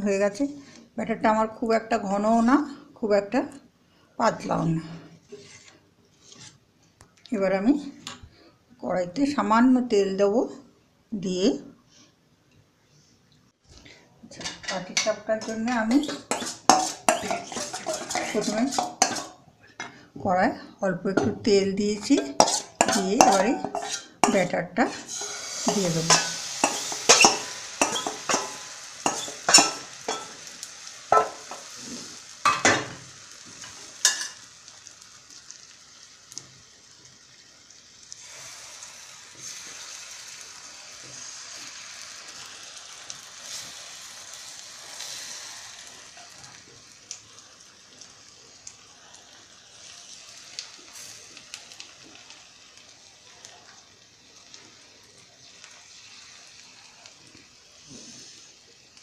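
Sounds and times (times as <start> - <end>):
batter sizzling in a pan: 5.2 - 6.6, 13.9 - 20.1, 21.1 - 59.0.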